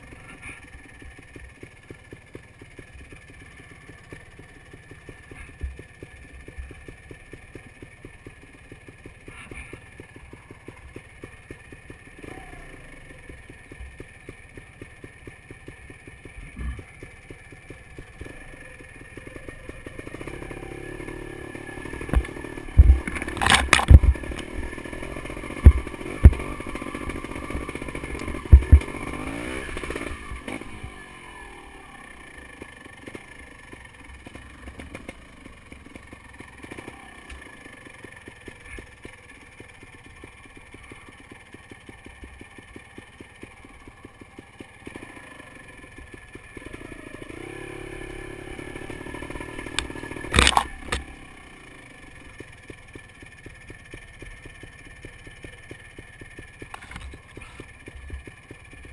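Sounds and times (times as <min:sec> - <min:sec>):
motorcycle engine revving: 0:00.0 - 0:58.9
sharp knocks and clatters: 0:22.0 - 0:24.7, 0:25.6 - 0:26.6.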